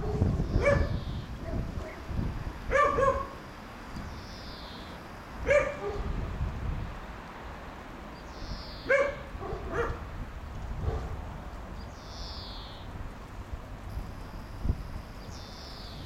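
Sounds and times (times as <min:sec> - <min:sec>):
dog barking: 0:00.0 - 0:02.0, 0:02.7 - 0:03.4, 0:05.4 - 0:06.2, 0:08.8 - 0:10.0, 0:10.8 - 0:11.2
wind rumble on microphone: 0:00.0 - 0:04.4, 0:05.3 - 0:16.0.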